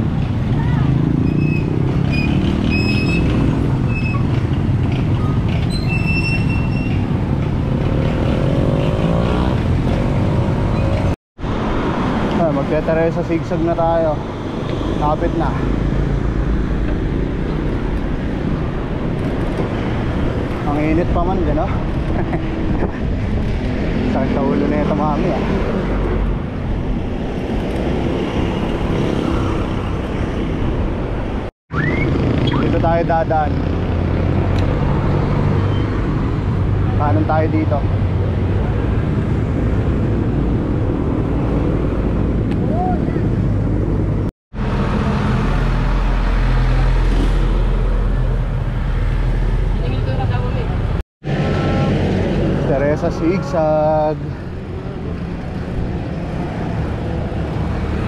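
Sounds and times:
wind and road noise rumbling: 0.0s - 58.0s
short high squeals: 5.7s - 7.0s
passing vehicle engine: 7.0s - 58.0s.

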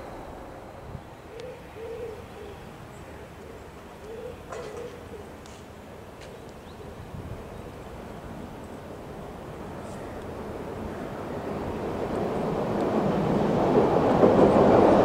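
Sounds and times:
steady background hiss: 0.0s - 13.5s
dove cooing: 1.3s - 5.4s.

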